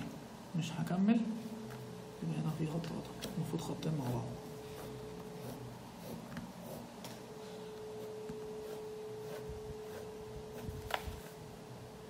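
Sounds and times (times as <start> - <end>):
faint steady hum: 0.0 - 12.0
pencil scratching on paper: 3.2 - 7.0, 8.0 - 11.4.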